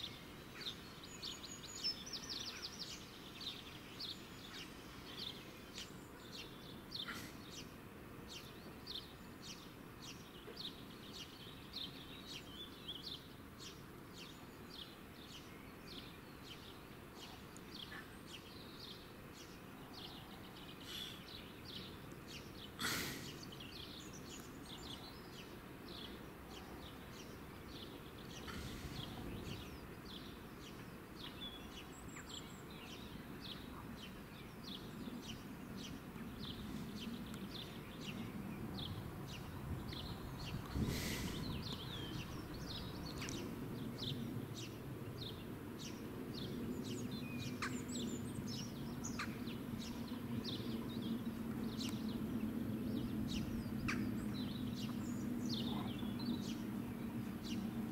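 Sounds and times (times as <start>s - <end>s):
faint outdoor background noise: 0.0s - 57.9s
small birds chirping: 0.0s - 57.9s.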